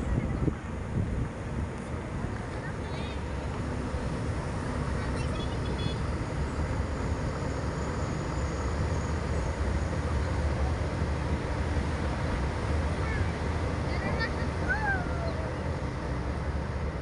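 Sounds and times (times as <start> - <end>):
car engine rumble: 0.0 - 17.0
road noise: 0.0 - 17.0.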